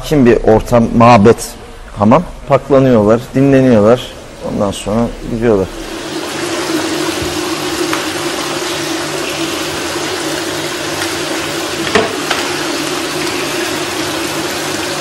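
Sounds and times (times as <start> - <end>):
water pouring and splashing: 3.4 - 15.0.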